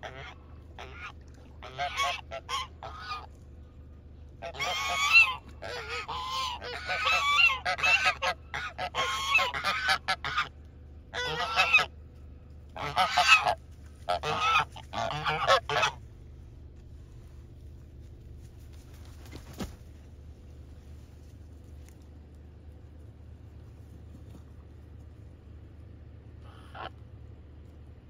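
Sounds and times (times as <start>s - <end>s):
fowl calling harshly: 0.0s - 3.3s, 4.4s - 10.5s, 11.1s - 11.9s, 12.8s - 16.0s, 26.4s - 26.9s.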